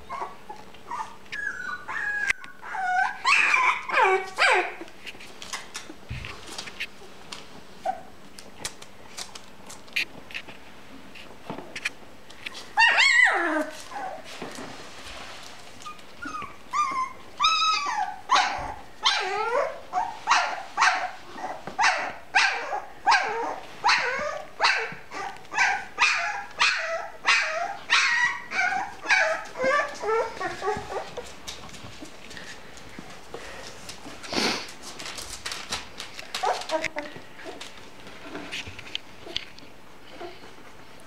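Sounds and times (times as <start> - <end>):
puppy yelping: 0.0 - 4.9, 12.7 - 14.2, 15.8 - 31.2, 36.3 - 37.6.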